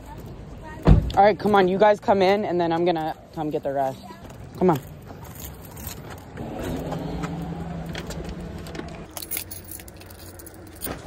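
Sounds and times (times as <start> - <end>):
keys jangling in a door lock: 5.2 - 6.2, 9.1 - 11.0
car passing: 6.3 - 11.0.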